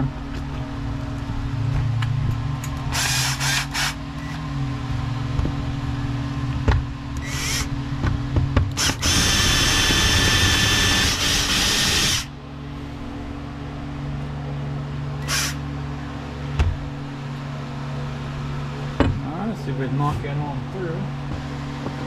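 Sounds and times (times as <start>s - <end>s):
power drill drilling metal: 2.9s - 4.0s, 8.8s - 12.3s, 15.2s - 15.6s.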